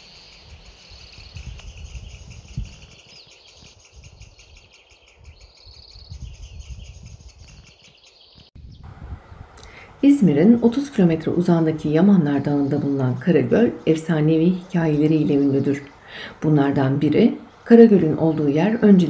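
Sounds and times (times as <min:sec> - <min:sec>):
birds calling in high trills: 0:00.0 - 0:09.5
faint chirping: 0:00.0 - 0:10.9
wind rumbling on microphone: 0:00.0 - 0:19.0.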